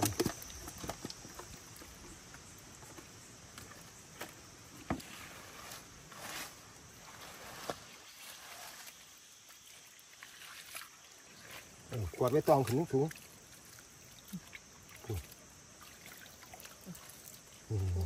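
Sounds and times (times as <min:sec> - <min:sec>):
shallow water splashing: 0:07.9 - 0:18.0.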